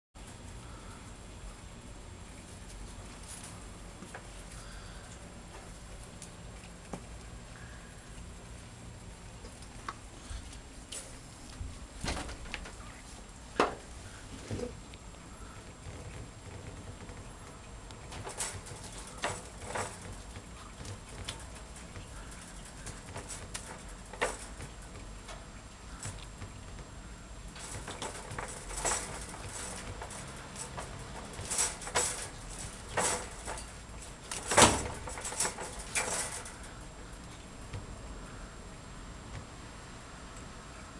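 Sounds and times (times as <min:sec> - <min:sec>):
wire cage rattling: 0:14.6 - 0:37.7
cats shuffling on wire floor: 0:15.6 - 0:26.9, 0:27.5 - 0:37.5.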